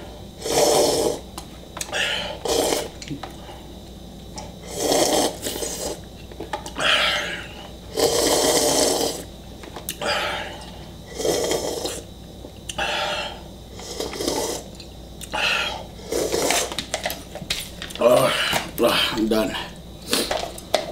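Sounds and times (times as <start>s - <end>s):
heavy breathing: 1.9s - 3.8s, 10.0s - 12.0s, 12.8s - 14.6s
man slurping broth: 2.2s - 3.0s, 4.6s - 6.0s, 7.0s - 9.2s, 11.2s - 12.0s, 13.8s - 14.7s, 15.6s - 16.7s.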